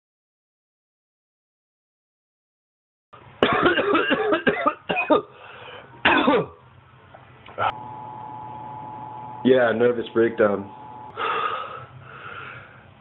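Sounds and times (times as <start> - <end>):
man coughing hard: 3.4 - 5.3, 6.0 - 6.6.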